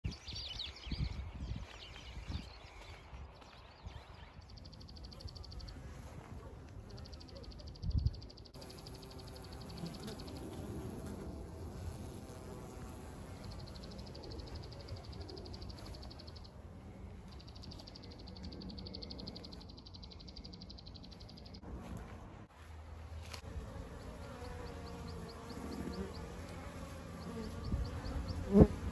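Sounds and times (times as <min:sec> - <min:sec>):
bees buzzing: 0:08.6 - 0:20.4, 0:21.0 - 0:28.9.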